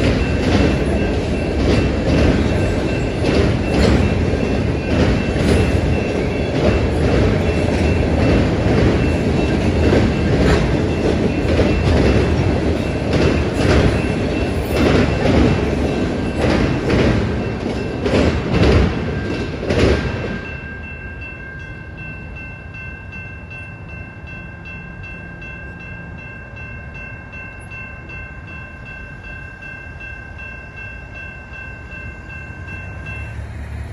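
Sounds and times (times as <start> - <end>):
train wheels clacking over rail joints: 0.0 - 20.5
crossing warning bell ringing: 0.0 - 33.9.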